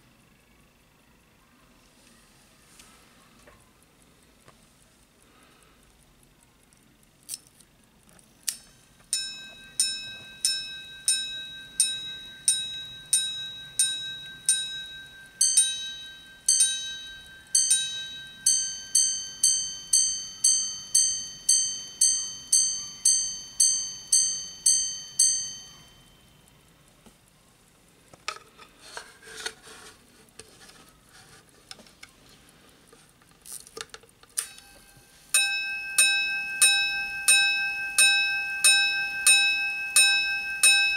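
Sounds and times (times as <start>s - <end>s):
watch gongs striking: 34.4s - 40.9s.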